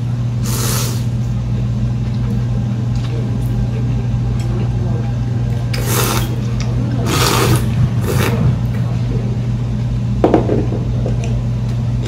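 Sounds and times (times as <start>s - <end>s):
steady low hum: 0.0s - 12.0s
noodles slurped: 5.7s - 8.5s.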